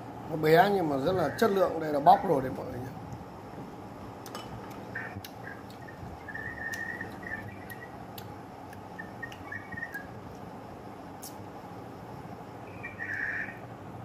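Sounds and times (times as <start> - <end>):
faint high chirps: 5.4 - 8.0, 9.0 - 10.2.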